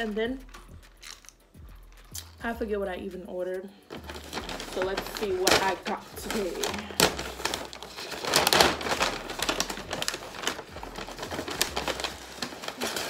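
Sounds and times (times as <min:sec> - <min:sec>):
paper bag rustling and crinkling: 0:03.9 - 0:13.0.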